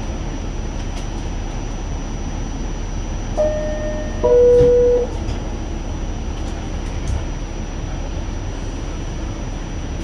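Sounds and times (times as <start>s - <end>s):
subway car rumble: 0.0s - 10.0s
two-note falling chime: 3.4s - 5.1s.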